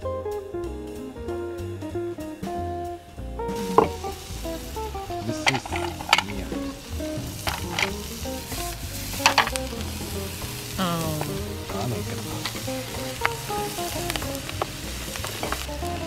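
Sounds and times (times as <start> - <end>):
background music: 0.0 - 16.0
food sizzling in a frying pan: 3.5 - 16.0.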